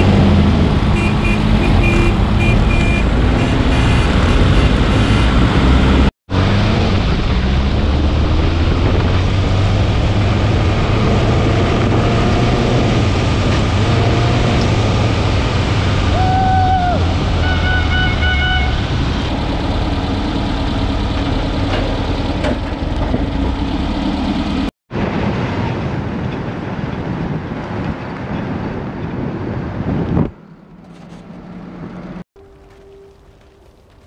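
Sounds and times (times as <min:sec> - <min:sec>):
off-road vehicle engine running: 0:16.9 - 0:24.7.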